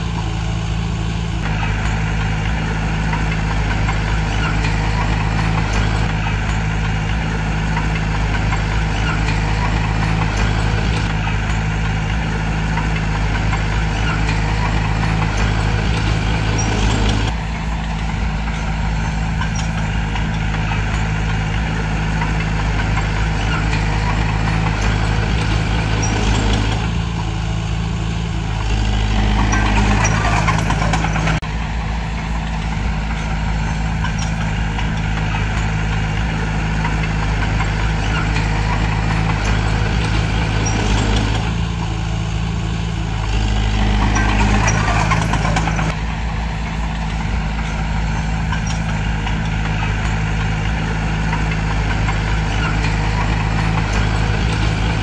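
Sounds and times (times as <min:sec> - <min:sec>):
bulldozer diesel engine running: 0:00.0 - 0:55.0
rattle: 0:00.0 - 0:55.0.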